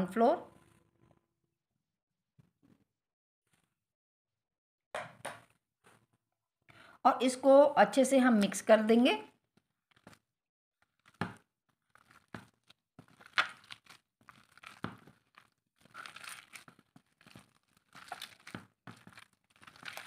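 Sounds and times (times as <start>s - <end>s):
gloved hand kneading mince: 9.5s - 20.0s.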